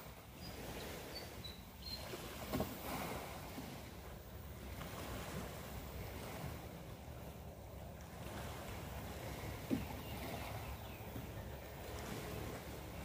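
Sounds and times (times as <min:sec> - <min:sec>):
waves washing over rocks: 0:00.0 - 0:01.4, 0:02.0 - 0:10.6
wind buffeting microphone: 0:00.0 - 0:13.0.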